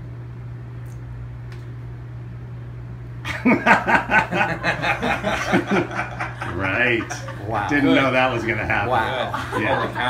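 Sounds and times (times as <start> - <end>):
low room hum: 0.0 - 10.0
men chuckling and laughing: 3.3 - 10.0.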